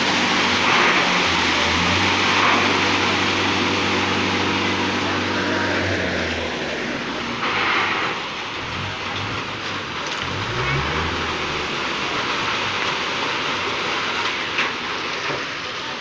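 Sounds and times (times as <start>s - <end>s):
tractor engine under strain: 0.0s - 16.0s.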